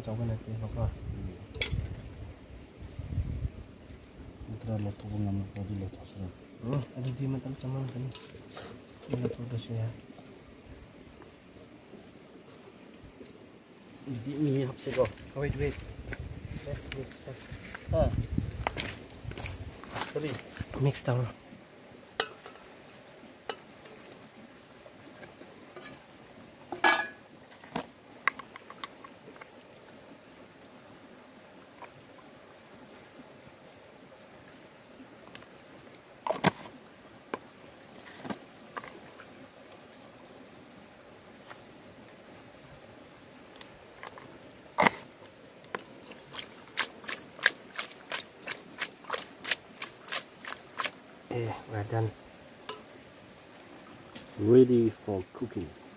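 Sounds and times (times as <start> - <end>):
cooking pot clicks and knocks: 26.7 - 27.2.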